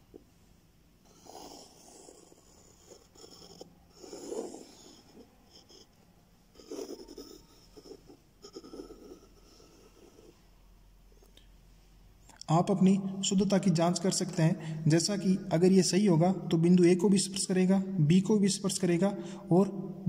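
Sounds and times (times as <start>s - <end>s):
pencil lead scratching paper: 1.1s - 5.9s, 6.5s - 10.4s.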